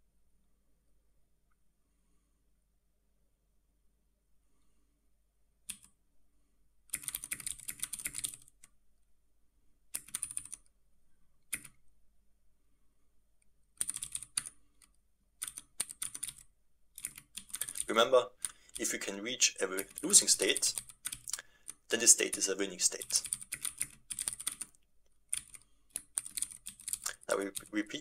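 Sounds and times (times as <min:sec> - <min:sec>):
typing on computer keyboard: 0:05.7 - 0:05.9, 0:06.9 - 0:08.7, 0:09.9 - 0:10.7, 0:11.5 - 0:11.8, 0:13.8 - 0:18.9, 0:19.8 - 0:28.0.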